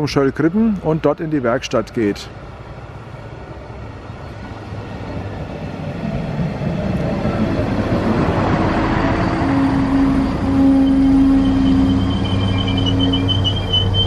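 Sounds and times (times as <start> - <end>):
diesel railcar engine running: 0.0 - 14.0
steady whine: 6.5 - 14.0.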